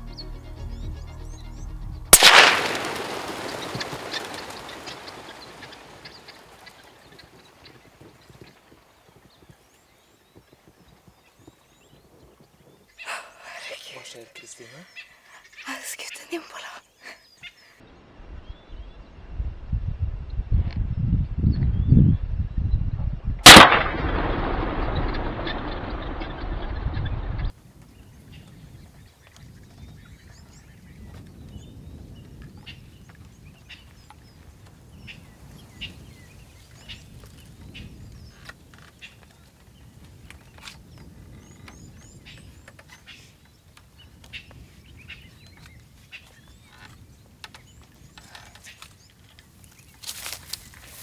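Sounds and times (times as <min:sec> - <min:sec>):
birds chirping: 0:00.0 - 0:19.2, 0:23.4 - 0:51.0
low wind rumble: 0:17.9 - 0:51.0
footsteps crunching through dry grass: 0:48.9 - 0:51.0.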